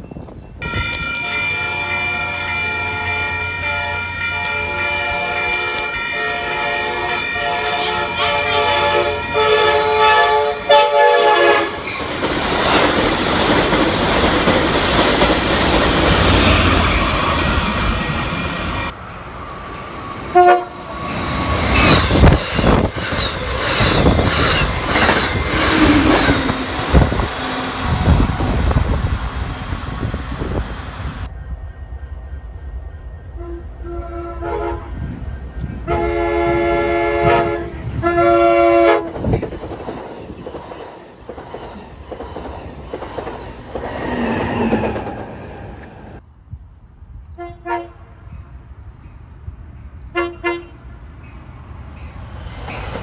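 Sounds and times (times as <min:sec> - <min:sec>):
clattering train wheels: 0:00.0 - 0:08.0, 0:11.8 - 0:18.9, 0:20.9 - 0:30.7, 0:38.6 - 0:46.2, 0:51.2 - 0:53.0
train rushing past: 0:00.0 - 0:47.2, 0:48.0 - 0:53.0
train horn chord: 0:00.6 - 0:11.8, 0:20.3 - 0:21.0, 0:33.3 - 0:35.0, 0:35.8 - 0:39.2, 0:47.4 - 0:48.1, 0:50.1 - 0:50.8
wheel squeals: 0:19.6 - 0:28.2.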